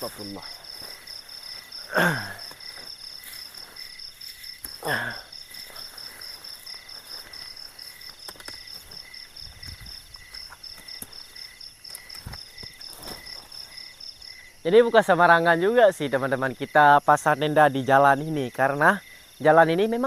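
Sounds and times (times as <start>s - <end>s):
crickets chirping: 0.0s - 20.0s.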